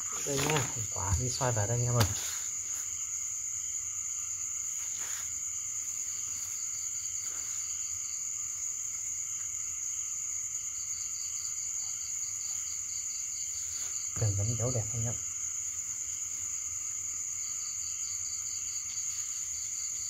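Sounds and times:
frogs and insects calling: 0:00.0 - 0:20.0
plastic sack rustling: 0:00.1 - 0:01.0.

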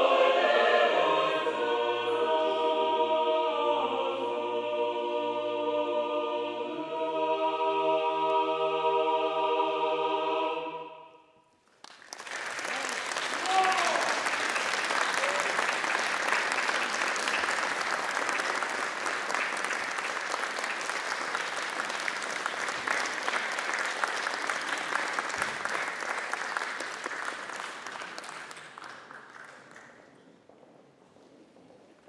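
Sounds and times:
audience applauding: 0:11.6 - 0:30.4.

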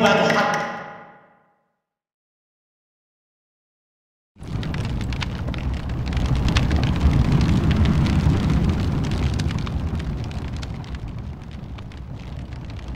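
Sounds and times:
flames crackling: 0:04.4 - 0:12.9.

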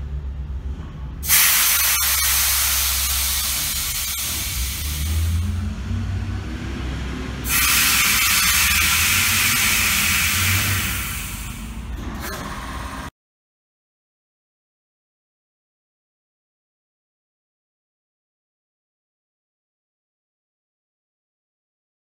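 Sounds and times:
pneumatic air hissing: 0:01.2 - 0:05.6, 0:07.4 - 0:12.0.

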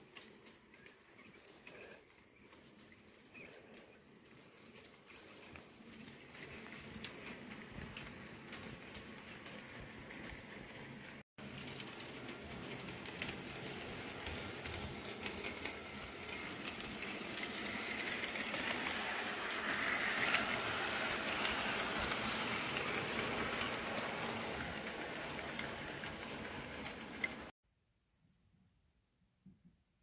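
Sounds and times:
wheels clicking on rails: 0:00.0 - 0:27.5
model train rushing hiss: 0:12.8 - 0:26.2.

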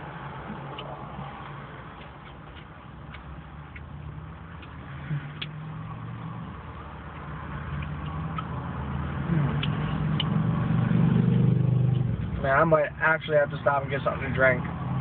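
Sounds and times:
person chewing food: 0:00.4 - 0:05.6, 0:06.7 - 0:10.4.

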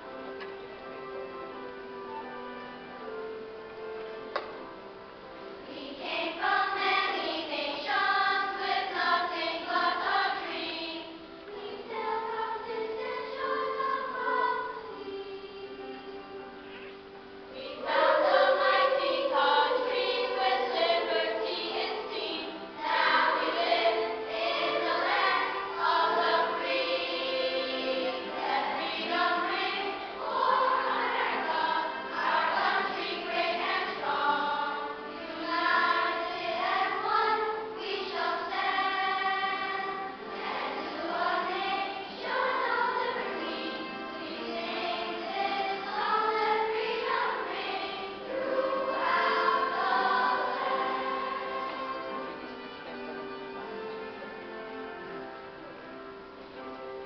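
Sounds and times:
children's choir singing: 0:00.0 - 0:57.0.

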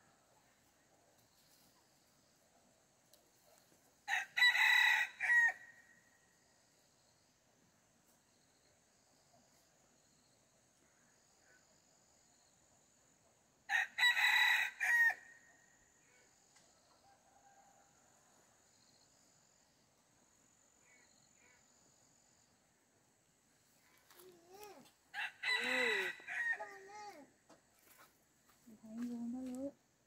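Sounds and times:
rooster crowing: 0:04.1 - 0:05.7, 0:13.7 - 0:15.3, 0:25.1 - 0:26.8.

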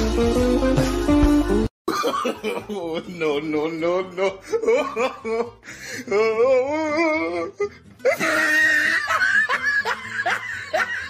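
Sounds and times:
person laughing: 0:01.9 - 0:03.4, 0:04.0 - 0:11.0.

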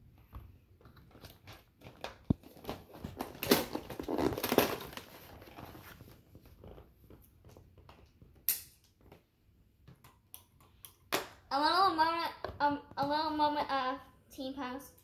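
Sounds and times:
rustling and crinkling: 0:00.0 - 0:09.4.

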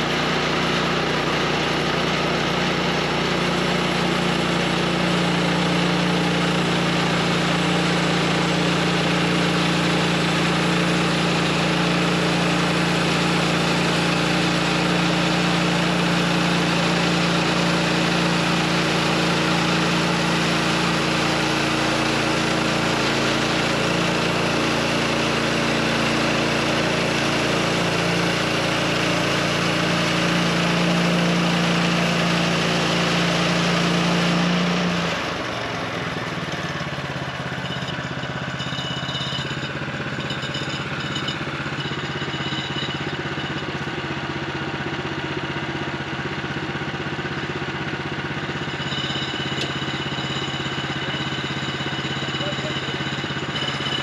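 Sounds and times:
band saw blade cutting log: 0:00.0 - 0:35.2
gas engine running under load: 0:00.0 - 0:54.0.

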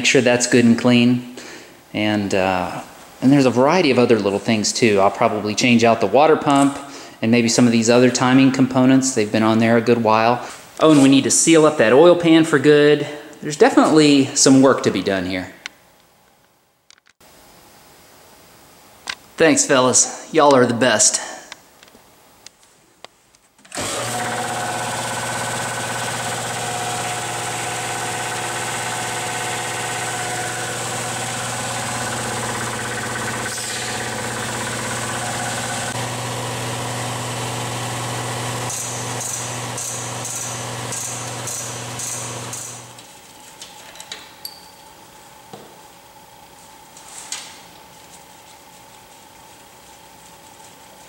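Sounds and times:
hydraulic pump motor humming: 0:23.7 - 0:43.0.

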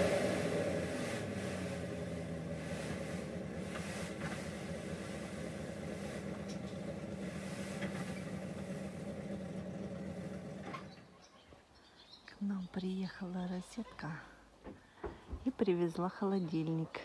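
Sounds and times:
sand unloading: 0:00.0 - 0:10.9
truck engine running: 0:00.0 - 0:11.1.

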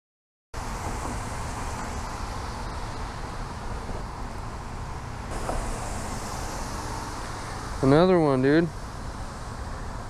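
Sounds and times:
hiss: 0:05.3 - 0:09.8.

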